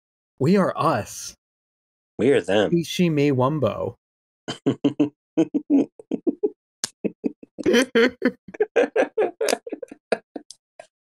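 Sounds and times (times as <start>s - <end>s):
men making nonsense mouth noises: 4.5s - 10.4s.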